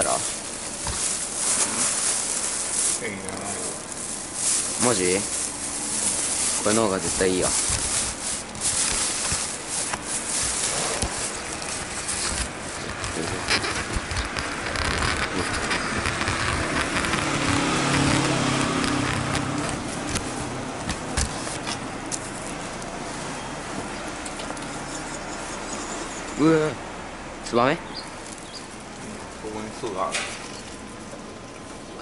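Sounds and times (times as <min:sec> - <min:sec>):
rough rustling noise: 0:00.0 - 0:24.0
vehicle engine running: 0:00.0 - 0:32.0
scattered clicks: 0:11.7 - 0:20.2.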